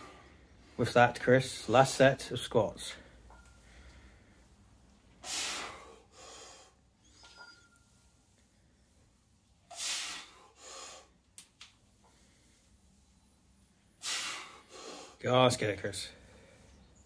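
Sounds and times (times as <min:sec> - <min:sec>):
man breathing hard: 0:05.2 - 0:06.9, 0:09.7 - 0:11.2, 0:14.0 - 0:15.2.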